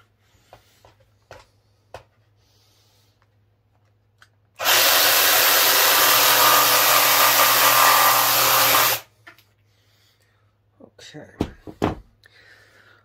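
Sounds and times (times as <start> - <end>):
jigsaw cutting wood: 4.6 - 9.1.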